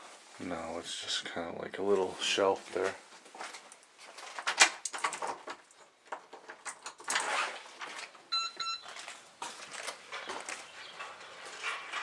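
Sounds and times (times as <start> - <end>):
short electronic beeps: 8.3 - 8.9.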